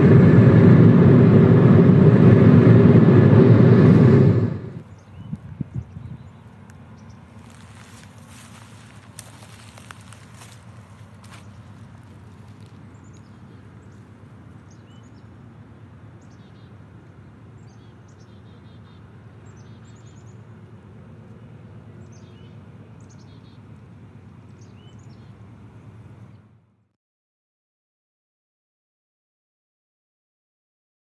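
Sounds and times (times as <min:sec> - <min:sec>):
steady low rumble: 0:00.0 - 0:16.0
small birds chirping: 0:04.9 - 0:15.4, 0:21.8 - 0:23.7.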